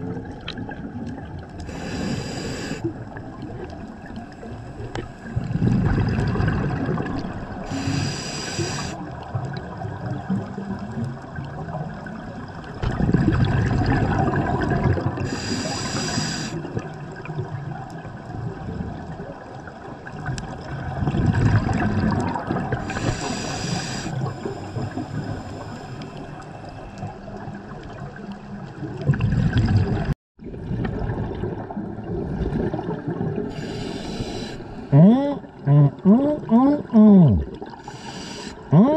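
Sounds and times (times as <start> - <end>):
exhaled bubbles gurgling underwater: 0.0 - 38.9
regulator inhalation hiss: 1.7 - 2.9, 7.7 - 9.0, 15.3 - 16.6, 22.8 - 26.4, 33.5 - 34.9, 37.8 - 38.7.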